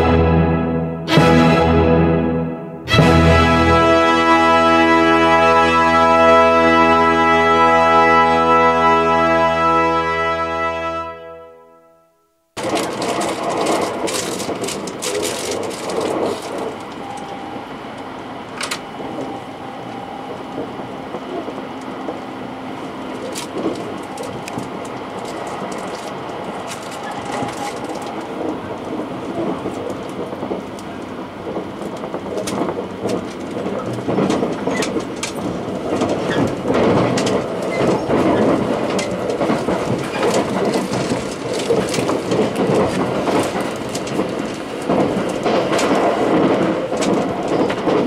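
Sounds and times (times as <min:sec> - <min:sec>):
clicks over rail joints: 0:12.6 - 0:17.4, 0:23.1 - 0:48.0
train wheels rumbling on rail: 0:12.6 - 0:48.0.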